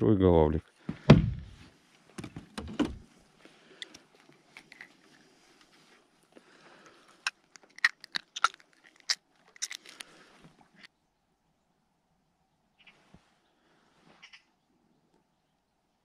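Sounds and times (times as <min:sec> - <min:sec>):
handling clicks and crackles: 0:03.8 - 0:10.9.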